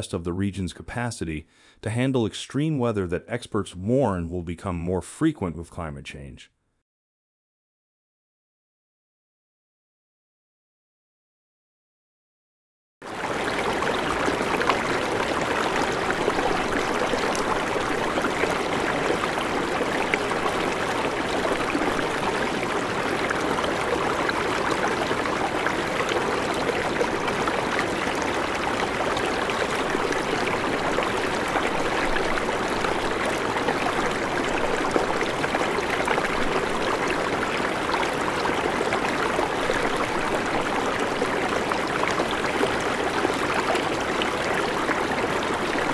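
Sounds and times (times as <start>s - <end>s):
rushing flood water: 13.1s - 45.9s.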